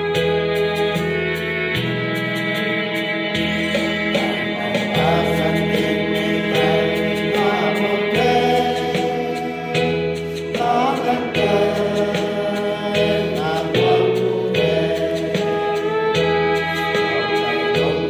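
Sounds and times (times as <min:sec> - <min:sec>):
instrument sustained chords: 0:00.0 - 0:18.0
men's choir singing a hymn: 0:04.1 - 0:15.9, 0:17.4 - 0:18.0.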